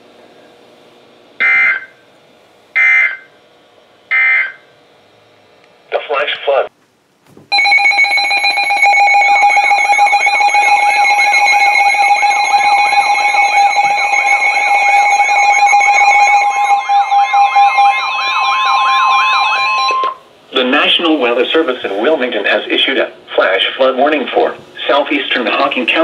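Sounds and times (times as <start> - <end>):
steady alarm tone: 1.4 - 2.0, 2.7 - 3.4, 4.1 - 4.7, 7.5 - 21.0
weather alert radio alarms: 1.4 - 2.0, 2.8 - 3.2, 4.1 - 4.6, 7.6 - 20.2
warbling siren-like tones: 7.6 - 20.2.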